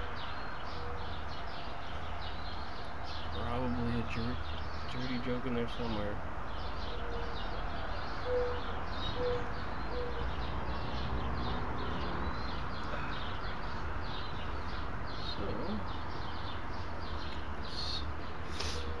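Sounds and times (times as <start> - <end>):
birds chirping: 0.0 - 19.0
low hooting bird notes: 6.5 - 16.4.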